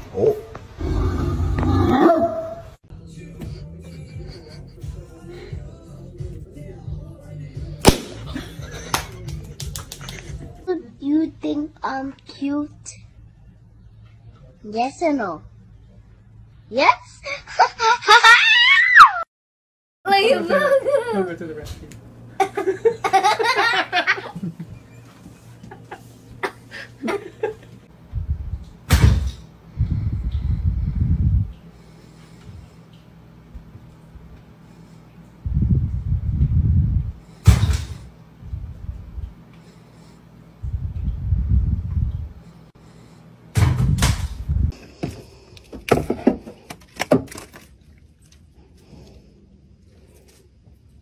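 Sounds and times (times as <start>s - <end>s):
people laughing: 3.8s - 5.0s, 8.2s - 10.5s, 20.3s - 21.6s, 22.4s - 24.8s, 25.6s - 27.8s
low rumbling noise: 27.8s - 32.8s, 35.4s - 39.4s, 40.5s - 42.5s, 43.6s - 44.8s.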